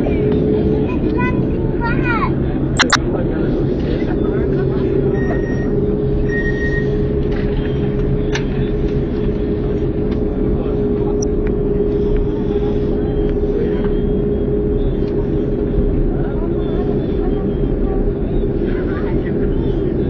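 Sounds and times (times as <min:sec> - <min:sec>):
short click: 0:02.8 - 0:03.0
aircraft engines idling: 0:05.7 - 0:20.0.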